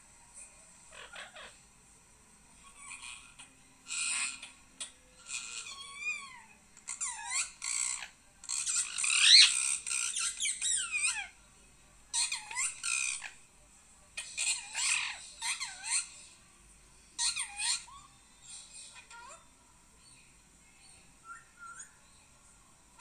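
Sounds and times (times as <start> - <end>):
parrot squawking and chirping: 0.9 - 1.6, 2.6 - 11.4, 12.1 - 13.4, 14.2 - 16.2, 17.2 - 19.4.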